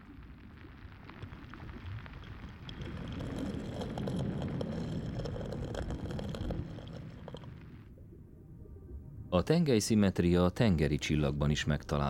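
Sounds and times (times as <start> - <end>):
faint crackles: 0.0 - 8.2.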